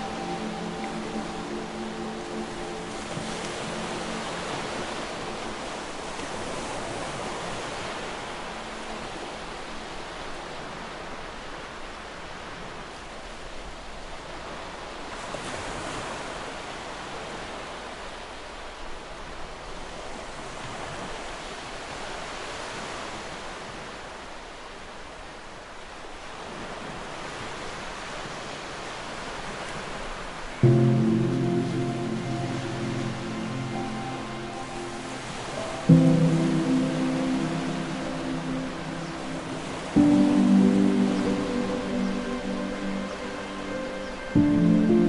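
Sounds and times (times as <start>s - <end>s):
soft rushing ambience: 0.0s - 10.5s, 30.6s - 45.0s.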